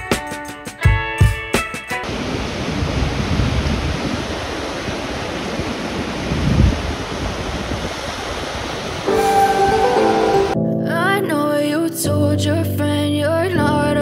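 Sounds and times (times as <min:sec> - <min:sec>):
ocean surf rushing: 0:02.0 - 0:10.6
wind noise on microphone: 0:02.0 - 0:10.6.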